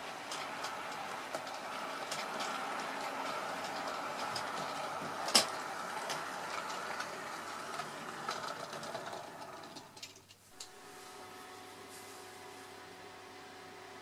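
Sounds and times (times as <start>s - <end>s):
model train running on track: 0.0s - 10.1s
wheels clicking over rail joints: 0.0s - 10.4s.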